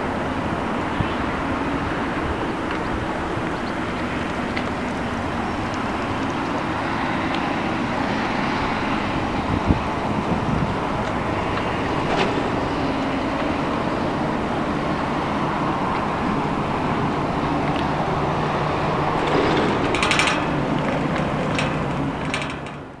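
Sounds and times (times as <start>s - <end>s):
excavator engine and hydraulics: 0.0s - 23.0s
short metallic rattle: 19.2s - 23.0s.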